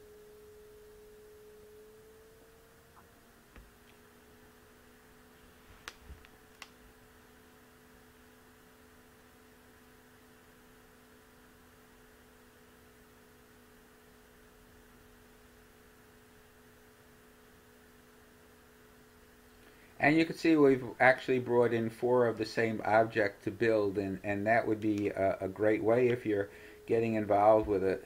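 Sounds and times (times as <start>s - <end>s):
low electrical hum: 0.0s - 28.0s.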